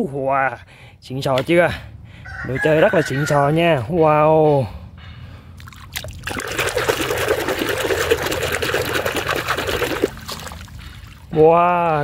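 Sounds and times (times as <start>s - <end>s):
water sloshing in a basin: 5.6s - 11.5s.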